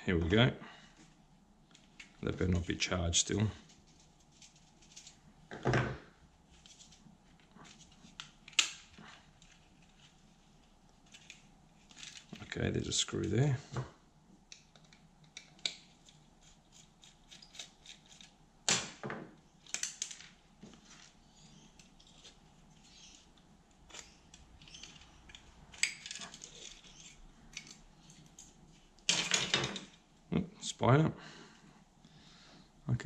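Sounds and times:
plastic parts being handled: 6.5s - 12.5s, 19.6s - 28.8s.

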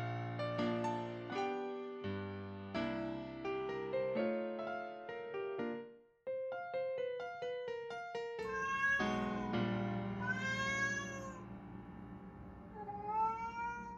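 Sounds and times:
piano notes stepping downward: 0.0s - 13.9s
cat meowing: 8.4s - 11.4s, 12.8s - 13.9s.

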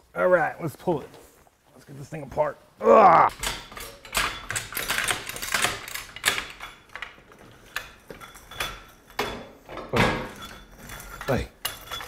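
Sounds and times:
metal car parts clunking: 3.3s - 12.0s.

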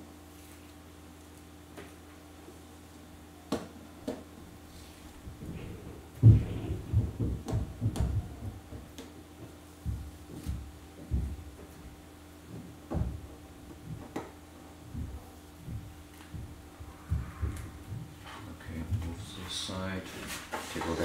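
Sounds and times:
low steady hum: 0.0s - 21.0s
paper thumping and rubbing: 4.8s - 14.2s.

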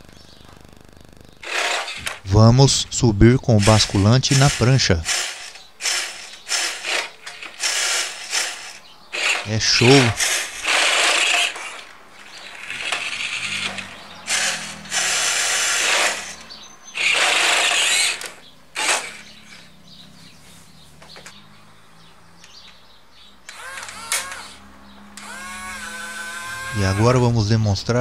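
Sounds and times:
faint hum: 0.0s - 7.4s
toy truck motor whirring: 1.4s - 19.8s, 23.4s - 27.5s.

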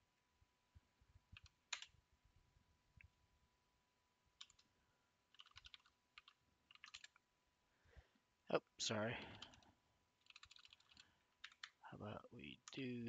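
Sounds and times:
computer keyboard keystrokes: 4.4s - 4.7s, 5.3s - 7.2s, 10.2s - 11.8s.

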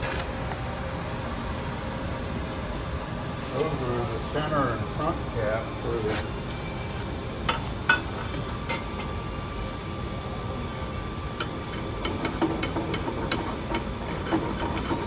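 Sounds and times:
metal tools clinking: 0.0s - 0.5s
background hum: 0.0s - 15.0s.

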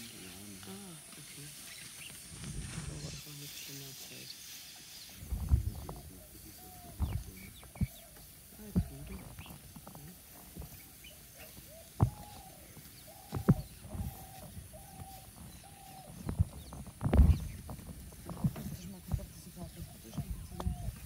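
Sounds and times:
short arching animal calls: 10.9s - 16.6s.

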